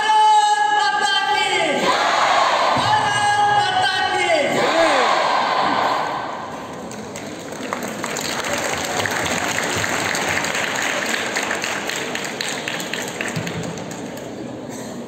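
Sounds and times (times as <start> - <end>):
audience applauding: 6.5 - 14.4.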